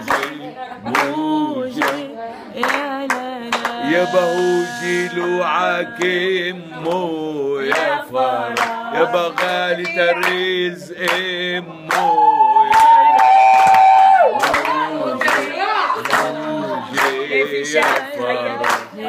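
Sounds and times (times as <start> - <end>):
hand-clapping: 0.0 - 1.2, 1.8 - 4.0, 7.7 - 8.0, 8.6 - 10.4, 11.0 - 11.3, 11.9 - 19.0
man and woman singing: 0.0 - 13.2, 14.2 - 19.0.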